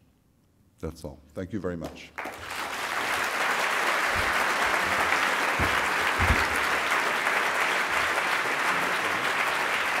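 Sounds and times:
audience applauding: 2.2s - 10.0s
low thumps: 5.6s - 6.7s.

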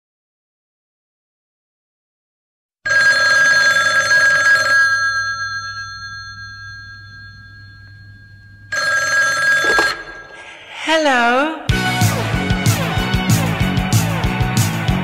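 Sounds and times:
old telephone bell ringing: 2.9s - 10.6s.

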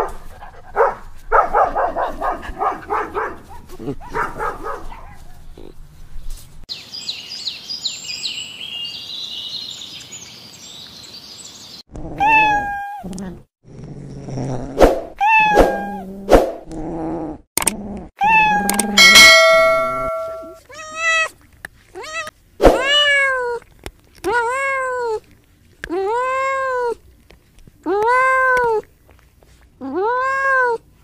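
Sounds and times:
cat meowing: 12.2s - 13.0s, 15.2s - 16.0s, 18.2s - 21.3s, 22.0s - 25.2s, 29.8s - 30.8s.

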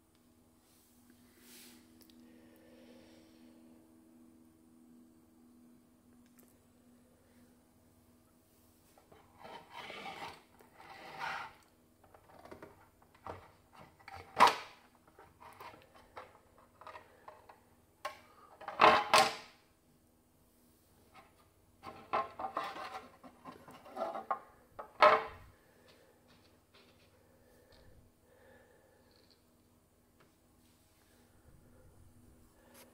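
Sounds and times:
plastic scrapes and rattles: 9.0s - 17.5s, 21.2s - 25.4s.

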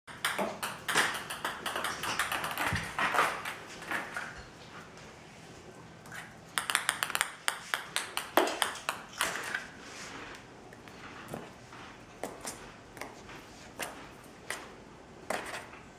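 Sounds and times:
ping pong ball bouncing on tiles: 0.1s - 3.6s, 6.5s - 9.6s.

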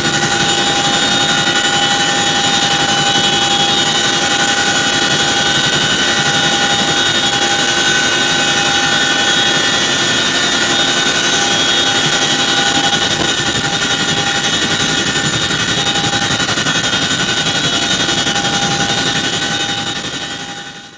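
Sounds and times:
helicopter rotors pulsing: 0.0s - 20.9s
turbine high whine: 0.0s - 20.9s.

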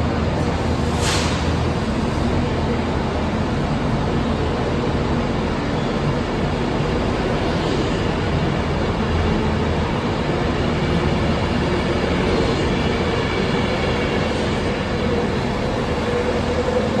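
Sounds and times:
train wheels rumbling: 0.0s - 17.0s.

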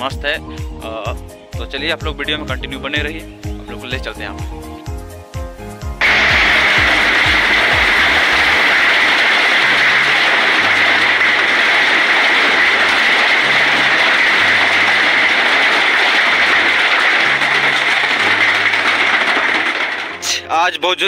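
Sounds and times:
low bass line music: 0.0s - 8.6s
heavy rain and hail: 6.0s - 20.4s.

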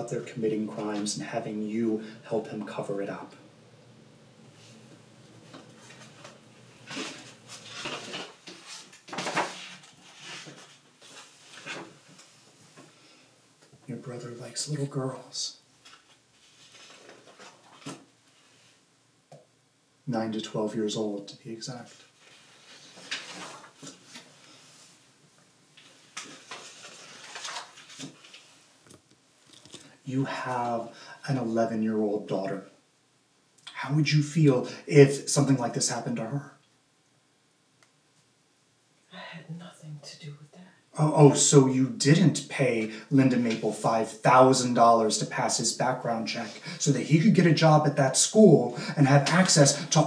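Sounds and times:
papers rustling on a table: 5.4s - 12.4s, 15.8s - 18.5s, 21.9s - 24.6s, 25.8s - 29.9s.

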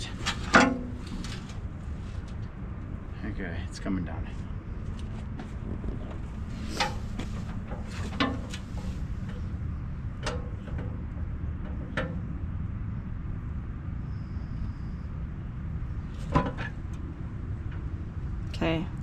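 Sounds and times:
metal clanks: 0.2s - 1.6s, 6.6s - 9.5s, 16.2s - 17.0s
tractor engine running: 4.8s - 13.0s.

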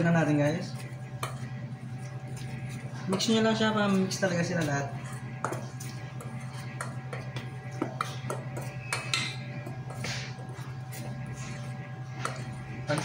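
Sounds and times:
spoon clinking and scraping bowl: 0.0s - 13.0s
steady low hum: 0.0s - 13.0s.

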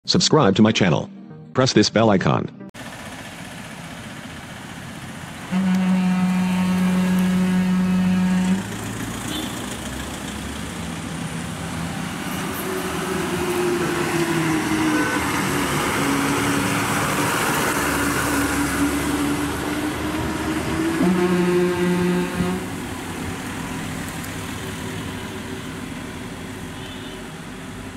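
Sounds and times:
bus diesel engine: 2.8s - 27.9s
vehicle horn: 5.5s - 9.7s, 12.6s - 17.0s, 18.4s - 22.8s, 26.7s - 27.4s.

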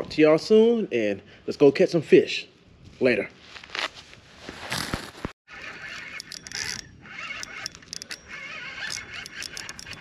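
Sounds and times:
handling rustle: 3.0s - 5.3s
fishing reel cranked whirring: 5.5s - 10.0s.

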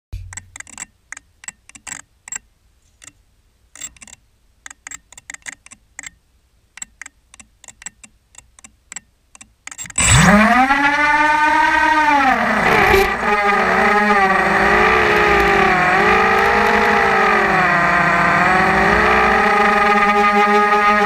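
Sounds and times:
light ticking and clicking: 0.2s - 10.0s
drone motors whining: 9.9s - 21.0s.

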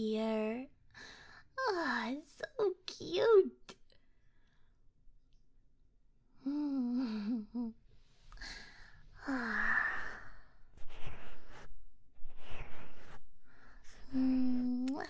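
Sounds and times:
soft breathy sounds: 6.3s - 15.0s
woman humming: 6.4s - 7.8s.

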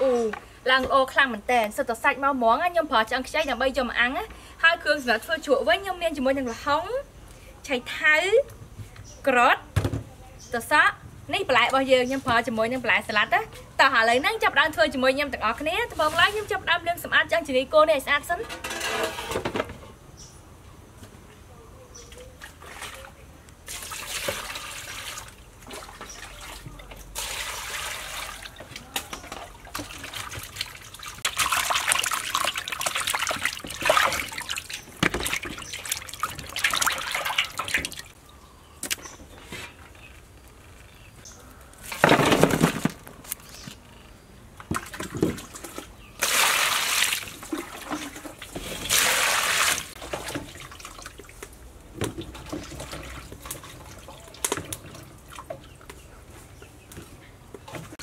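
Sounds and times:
water splashing in metal basin: 22.4s - 38.2s, 44.7s - 55.9s.

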